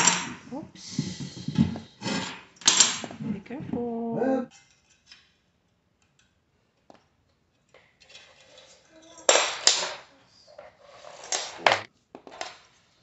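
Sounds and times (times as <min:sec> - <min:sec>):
glass shelf scraping and clinking: 0:10.7 - 0:11.9.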